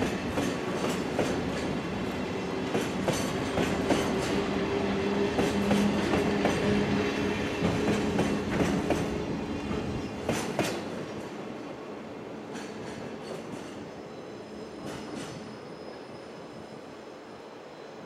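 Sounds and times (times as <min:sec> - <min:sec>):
freight train wheels rumbling: 0:00.0 - 0:17.0
high wheel squeal: 0:14.0 - 0:18.0.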